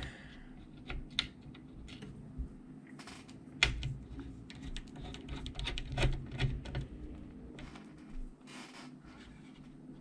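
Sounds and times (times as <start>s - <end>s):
screwdriver clicking and scraping on metal: 3.6s - 6.9s.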